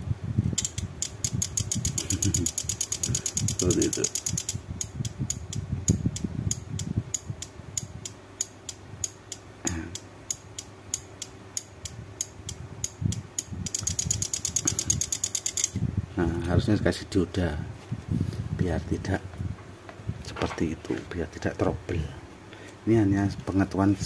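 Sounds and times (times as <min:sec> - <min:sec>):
relay clicking on and off: 0:00.6 - 0:05.6, 0:07.4 - 0:15.8
person speaking: 0:02.0 - 0:04.4, 0:09.6 - 0:10.0, 0:16.1 - 0:17.8, 0:18.5 - 0:19.4, 0:20.2 - 0:24.0.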